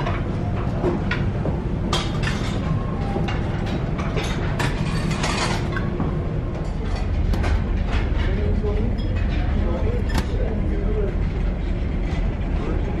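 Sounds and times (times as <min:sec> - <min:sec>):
low engine rumble: 0:00.0 - 0:13.0
crockery and utensils clinking: 0:01.9 - 0:06.0.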